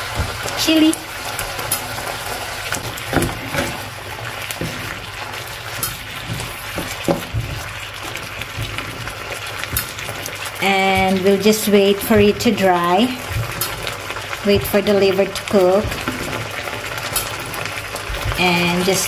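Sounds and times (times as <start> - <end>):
food sizzling in a frying pan: 0.0 - 19.0
utensil knocking against pan: 6.2 - 7.8.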